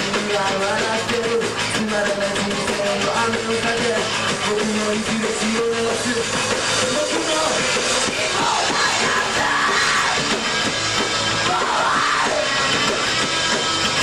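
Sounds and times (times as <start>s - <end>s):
live rock band: 0.0s - 14.0s
rising and falling wails: 8.0s - 10.3s.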